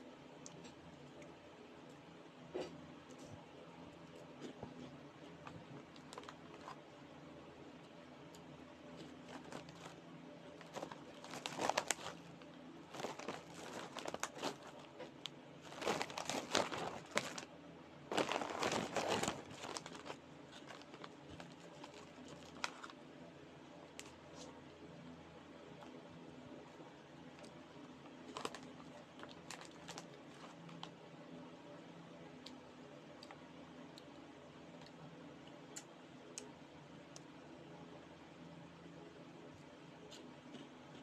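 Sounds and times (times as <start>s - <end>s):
plastic snack bag crinkling: 5.4s - 6.8s, 9.0s - 17.5s, 18.1s - 23.0s, 28.2s - 31.0s.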